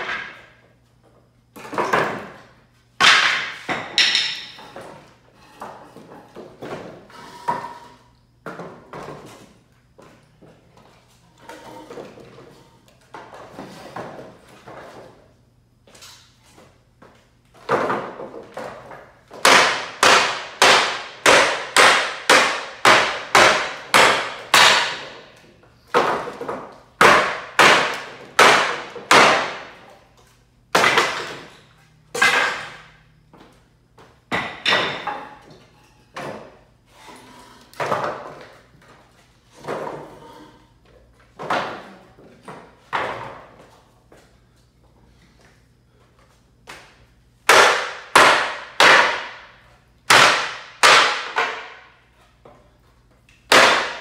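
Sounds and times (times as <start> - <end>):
hammer striking wooden pallet: 3.0 - 4.9, 17.7 - 25.3, 25.9 - 29.8, 30.7 - 31.5, 32.1 - 32.9, 34.3 - 35.4, 47.4 - 49.5, 50.1 - 51.9, 53.5 - 54.0.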